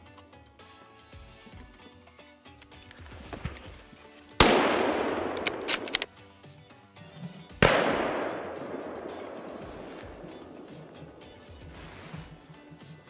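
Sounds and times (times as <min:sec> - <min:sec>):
rifle shots echoing: 0:04.4 - 0:06.1, 0:07.6 - 0:11.6.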